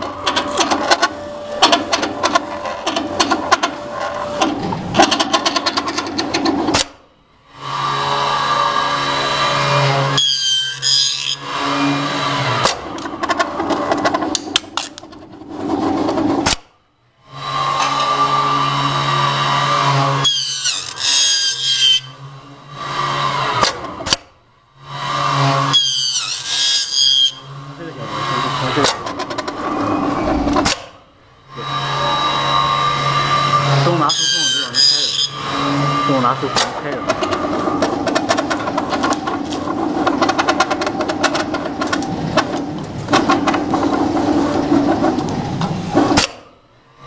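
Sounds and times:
bending machine motors humming: 0.0s - 6.8s, 27.2s - 46.2s.

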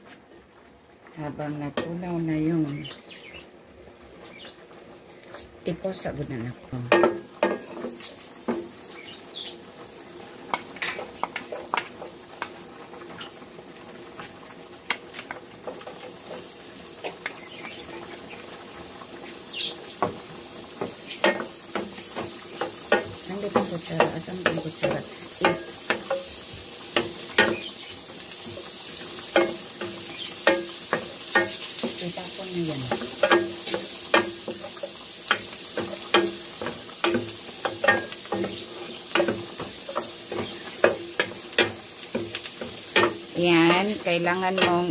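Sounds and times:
garlic and onion sizzling in pan: 0.0s - 44.9s
wooden spatula knocking on pan: 6.9s - 8.8s, 19.9s - 26.3s, 26.9s - 27.8s, 28.5s - 32.0s, 32.8s - 44.9s.

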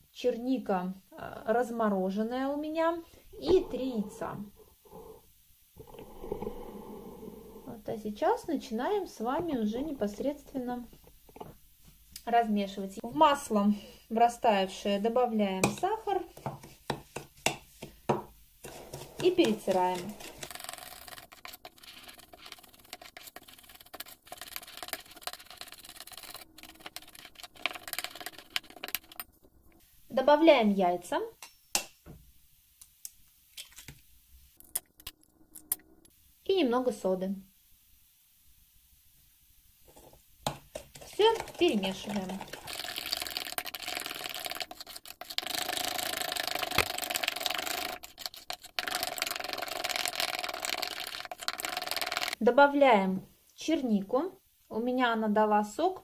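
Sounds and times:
metal spoon scraping glass bowl: 18.6s - 29.2s, 40.9s - 52.3s.

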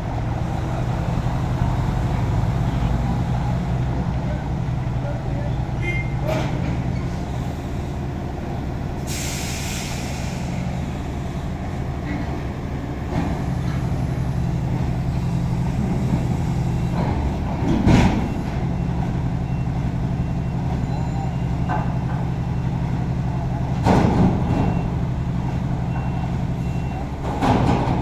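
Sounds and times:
diesel truck engine idling: 0.0s - 27.4s
air brake hiss: 9.0s - 10.7s.

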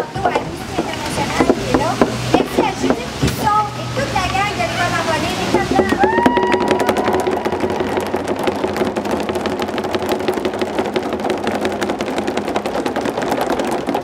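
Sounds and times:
crowd applauding: 5.6s - 14.0s.

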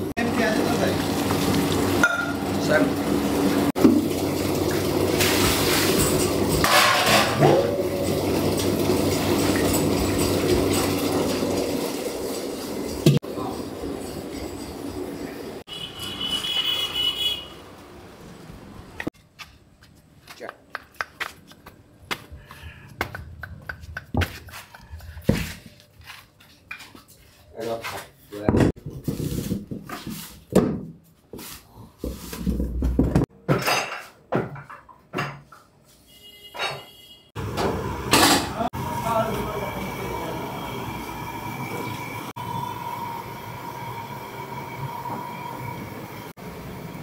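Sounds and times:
tap water running into sink: 0.2s - 6.6s, 7.6s - 13.2s
metal pots knocking: 2.0s - 2.4s.

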